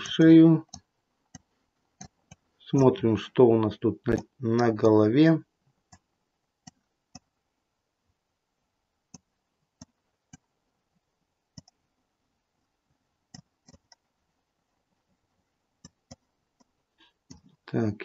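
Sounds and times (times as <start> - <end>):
computer mouse buttons clicking: 0.7 - 2.4, 11.6 - 11.8, 13.3 - 14.0.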